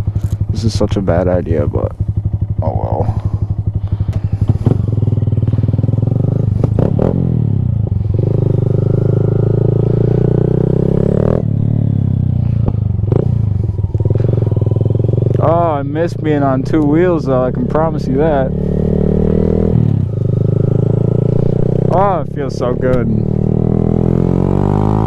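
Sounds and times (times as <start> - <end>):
motorcycle engine idling and pulling away: 0.0 - 25.0.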